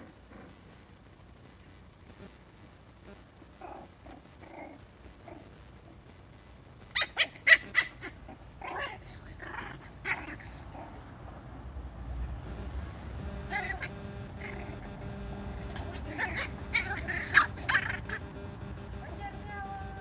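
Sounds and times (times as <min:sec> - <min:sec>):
puppies growling: 0:00.0 - 0:00.8, 0:03.6 - 0:06.0, 0:06.9 - 0:20.0
puppies yapping: 0:06.9 - 0:11.0, 0:13.3 - 0:18.6.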